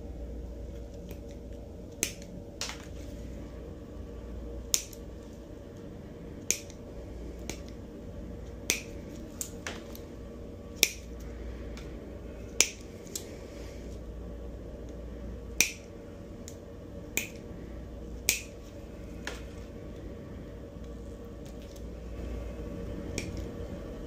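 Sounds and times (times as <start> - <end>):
toenail nippers snapping: 8.7 - 9.6, 18.3 - 18.5.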